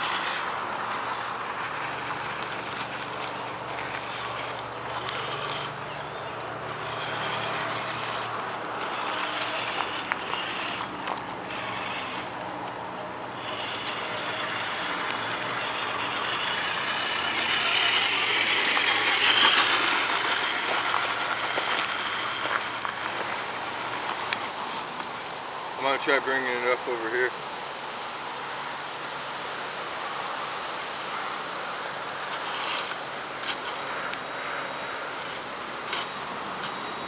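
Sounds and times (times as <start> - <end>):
toy truck motor and gears: 0.0 - 27.3, 32.2 - 37.0.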